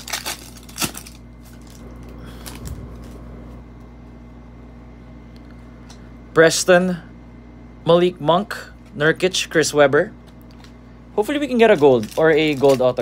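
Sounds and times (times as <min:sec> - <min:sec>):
plastic foil wrapper crinkling: 0:00.0 - 0:03.2, 0:11.4 - 0:13.0
cards rustling sliding out: 0:11.7 - 0:13.0.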